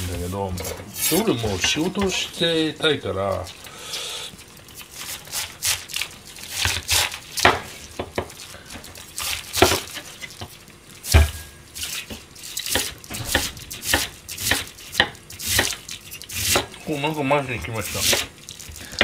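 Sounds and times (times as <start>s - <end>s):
knife slicing through cabbage: 0.6s - 2.1s, 4.9s - 7.8s, 11.0s - 14.8s, 15.4s - 16.8s, 18.0s - 18.3s.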